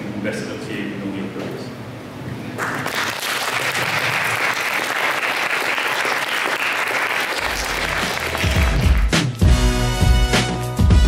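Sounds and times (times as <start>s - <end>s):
audience applauding: 2.6s - 9.4s
music with heavy bass line: 7.5s - 11.0s.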